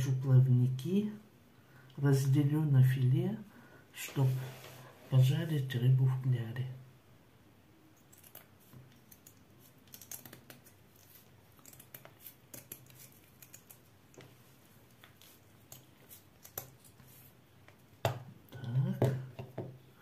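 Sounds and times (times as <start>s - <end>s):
scissors snipping fish fins: 11.6s - 14.2s.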